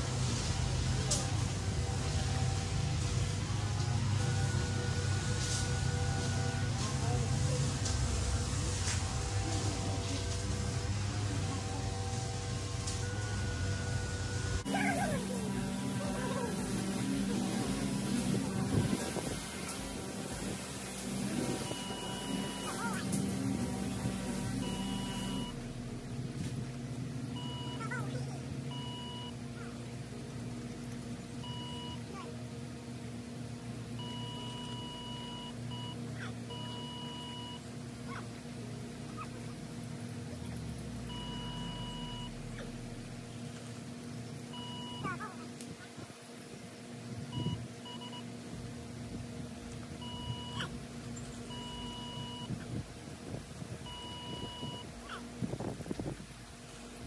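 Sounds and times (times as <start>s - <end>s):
steady low hum: 0.0s - 57.0s
short electronic beeps: 21.4s - 23.0s, 24.6s - 25.6s, 27.4s - 28.0s, 34.0s - 37.6s, 41.1s - 42.8s, 44.6s - 45.2s, 50.0s - 50.7s, 51.5s - 52.6s, 53.9s - 54.9s.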